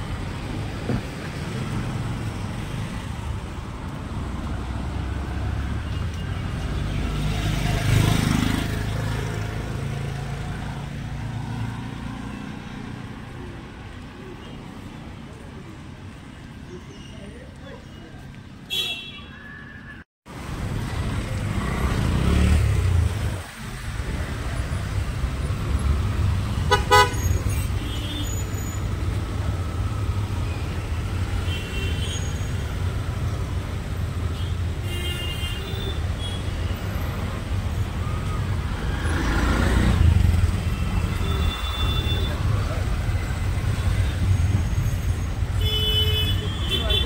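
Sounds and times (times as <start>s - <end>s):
engines rumbling: 0.0s - 18.7s, 20.3s - 47.0s
vehicle horns tooting: 26.6s - 28.8s, 40.8s - 42.5s, 45.5s - 47.0s.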